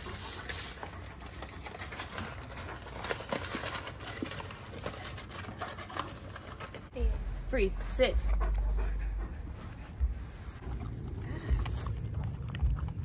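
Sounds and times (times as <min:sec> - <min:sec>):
foil rustling: 0:00.0 - 0:07.0.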